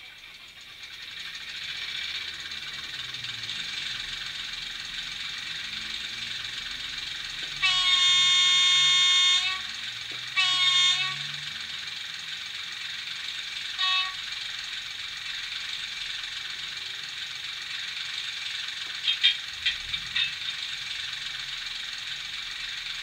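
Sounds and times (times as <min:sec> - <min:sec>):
model diesel engine sound: 0:00.0 - 0:23.0
model train horn: 0:05.6 - 0:12.1, 0:12.8 - 0:15.0.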